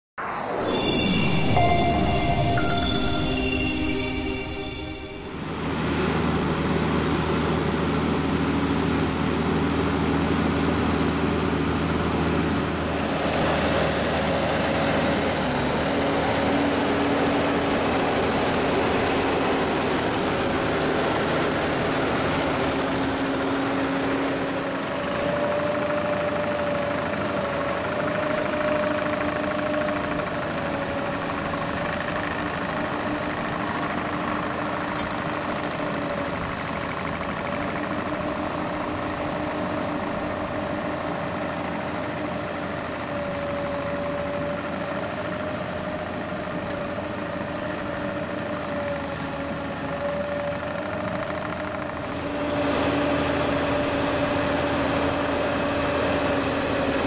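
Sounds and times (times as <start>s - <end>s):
tractor engine running under load: 14.0s - 57.0s.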